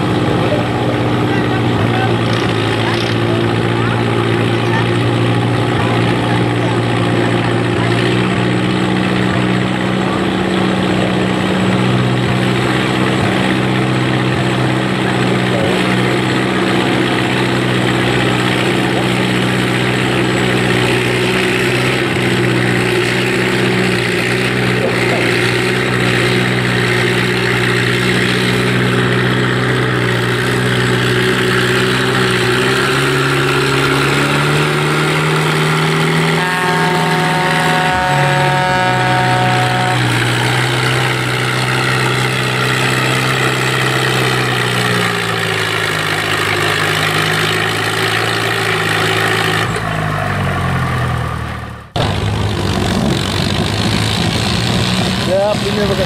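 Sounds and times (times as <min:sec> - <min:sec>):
tractor engine droning under load: 0:00.0 - 0:56.0
held horn-like tone: 0:18.6 - 0:43.9.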